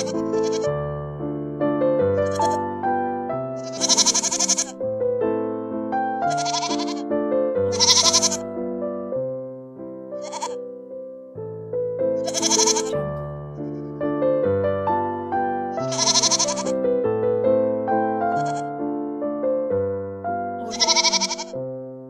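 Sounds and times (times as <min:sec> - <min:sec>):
sheep and goats bleating: 0:00.0 - 0:00.8, 0:02.2 - 0:02.6, 0:03.6 - 0:04.8, 0:06.3 - 0:07.1, 0:07.7 - 0:08.4, 0:10.2 - 0:10.6, 0:12.2 - 0:14.0, 0:15.8 - 0:16.8, 0:18.3 - 0:18.7, 0:20.6 - 0:21.6
piano music: 0:00.0 - 0:22.0.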